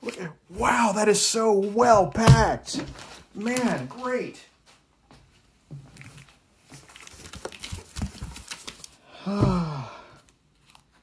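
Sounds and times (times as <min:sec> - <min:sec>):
plastic bags crinkling: 0:06.0 - 0:09.0
cardboard packaging pulled apart: 0:06.8 - 0:09.0.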